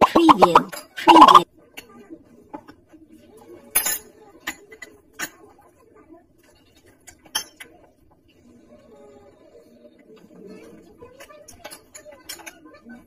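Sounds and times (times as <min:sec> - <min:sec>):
spoon clinking on bowls: 0:07.0 - 0:07.8.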